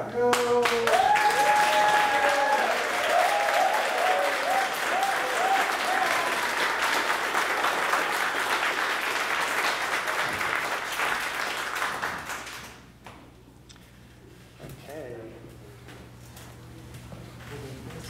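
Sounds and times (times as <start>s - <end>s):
people applauding: 0.2s - 12.9s.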